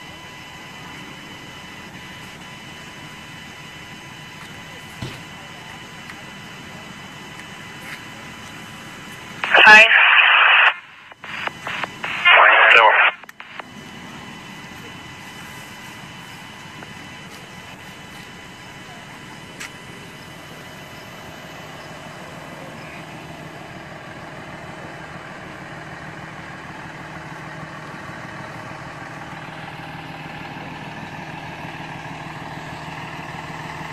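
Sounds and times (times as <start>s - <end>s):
fire truck engine idling: 0.0s - 33.9s.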